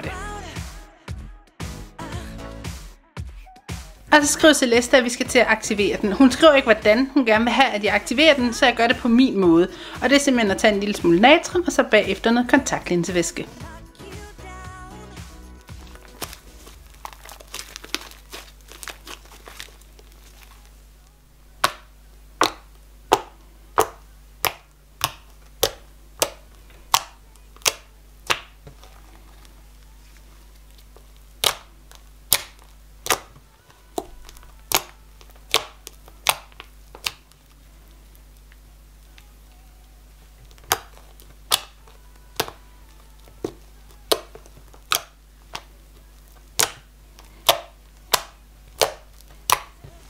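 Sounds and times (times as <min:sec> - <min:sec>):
spoon stirring sticky slime: 0:15.6 - 0:20.8, 0:21.6 - 0:39.4, 0:40.1 - 0:50.0
slime popping with sharp clicks: 0:21.6 - 0:28.6, 0:31.4 - 0:33.3, 0:33.9 - 0:37.4, 0:40.5 - 0:42.6, 0:43.3 - 0:45.7, 0:46.4 - 0:49.8.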